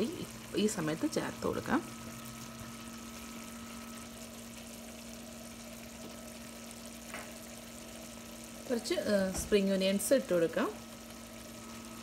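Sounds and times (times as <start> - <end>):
food simmering hiss: 0.0 - 12.0
steady low hum: 0.0 - 12.0.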